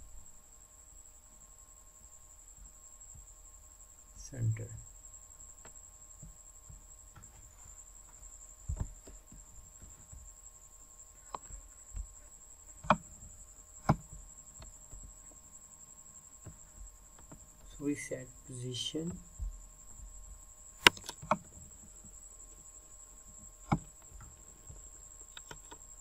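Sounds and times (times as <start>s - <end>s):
faint background hiss: 0.0s - 26.0s
high-pitched whine: 4.1s - 5.0s
computer mouse clicks: 20.8s - 21.5s, 25.3s - 25.8s.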